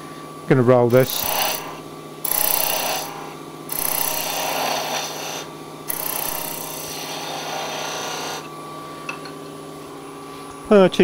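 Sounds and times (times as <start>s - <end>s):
tool shaving wood on a lathe: 0.9s - 8.5s
lathe motor humming: 0.9s - 8.6s.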